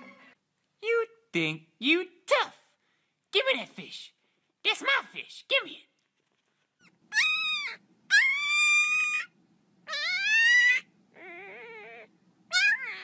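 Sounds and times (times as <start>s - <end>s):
puppy whining: 6.7s - 13.0s.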